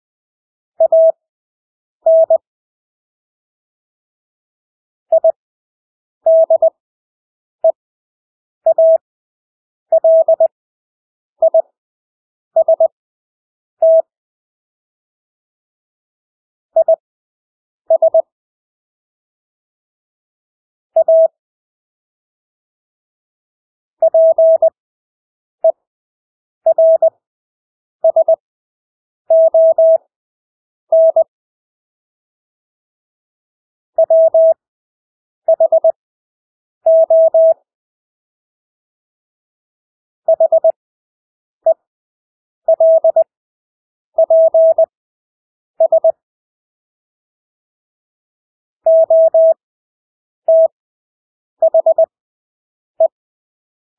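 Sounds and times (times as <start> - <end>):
morse code beeps: 0.8 - 1.2, 2.1 - 2.4, 6.3 - 6.8, 8.7 - 9.0, 9.9 - 10.5, 11.4 - 11.6, 12.6 - 13.0, 13.8 - 14.1, 17.9 - 18.3, 21.0 - 21.4, 24.0 - 24.8, 26.7 - 27.1, 28.0 - 28.4, 29.3 - 30.0, 30.9 - 31.3, 34.0 - 34.6, 35.5 - 36.0, 36.9 - 37.6, 40.3 - 40.8, 42.7 - 43.3, 44.2 - 44.9, 45.8 - 46.2, 48.9 - 49.6, 50.5 - 50.8, 51.6 - 52.1.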